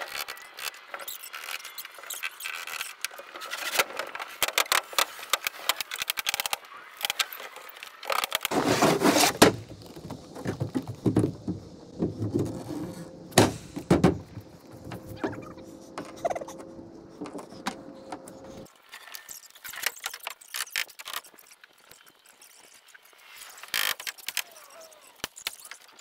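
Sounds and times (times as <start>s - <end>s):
knocks and scrapes on wooden deck: 8.4s - 18.7s
footsteps on wooden sheathing: 9.1s - 16.2s.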